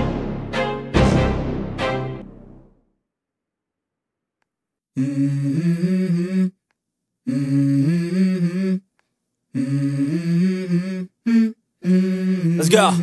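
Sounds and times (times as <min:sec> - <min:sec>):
person humming: 0:05.0 - 0:06.6, 0:07.2 - 0:08.9, 0:09.5 - 0:13.0.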